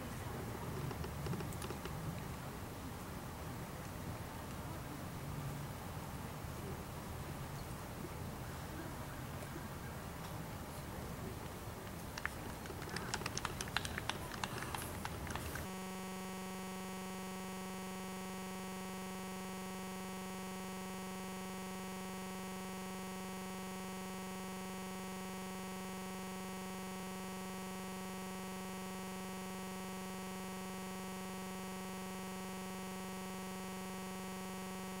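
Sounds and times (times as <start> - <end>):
outdoor sound with clicks: 0.8 - 2.0, 11.8 - 15.7.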